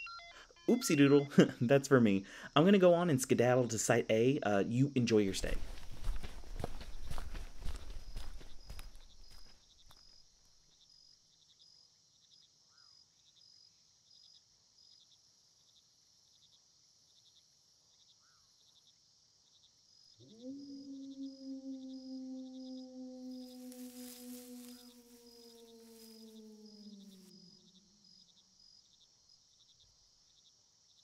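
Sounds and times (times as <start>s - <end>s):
crickets chirping: 0.3s - 11.9s, 19.5s - 30.4s
footsteps walking away: 5.3s - 10.6s, 23.3s - 27.3s.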